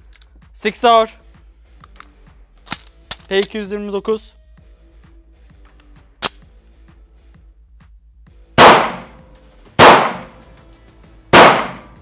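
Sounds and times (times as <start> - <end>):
pistol slide click: 1.8 - 3.5, 5.8 - 6.5
pistol shots echoing indoors: 8.6 - 9.2, 9.8 - 10.4, 11.4 - 12.0.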